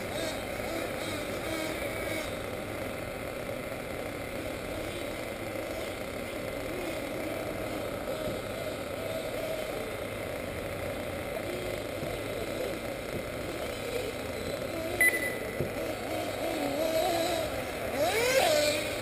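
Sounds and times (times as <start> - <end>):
rc buggy engines whining: 0.0 - 19.0
short high beep: 15.0 - 15.5.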